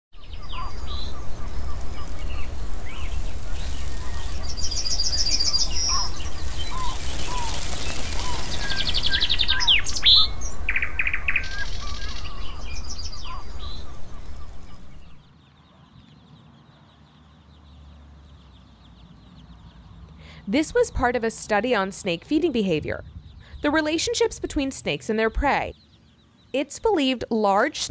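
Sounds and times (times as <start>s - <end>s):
steady background hiss: 0.2s - 15.2s
songbirds chirping and trilling: 0.2s - 27.9s.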